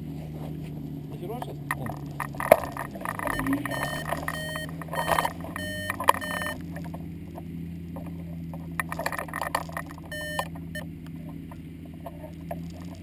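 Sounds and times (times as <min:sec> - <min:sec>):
engine humming: 0:00.0 - 0:13.0
short high electronic beeps: 0:03.2 - 0:06.6, 0:10.1 - 0:10.5.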